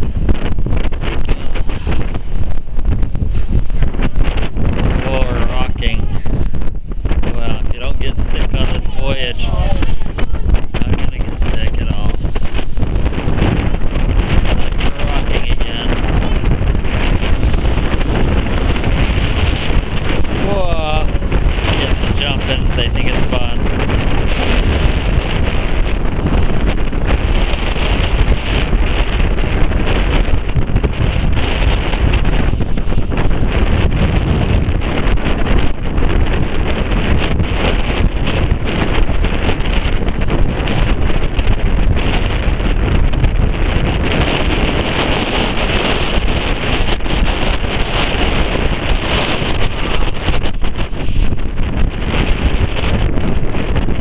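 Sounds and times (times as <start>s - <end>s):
choppy sea rushing: 0.0s - 54.0s
wind buffeting microphone: 0.0s - 54.0s.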